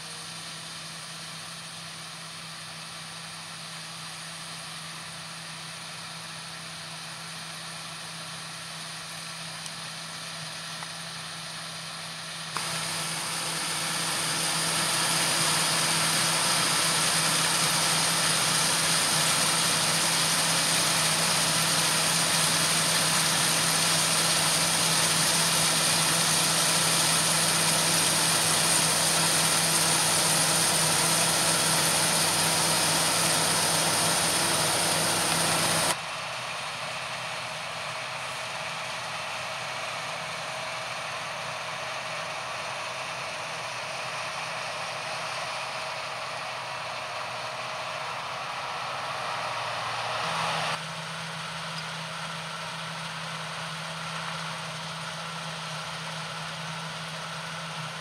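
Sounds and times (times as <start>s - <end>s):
combine harvester engine drone: 0.0s - 58.0s
strong hiss: 12.6s - 36.0s.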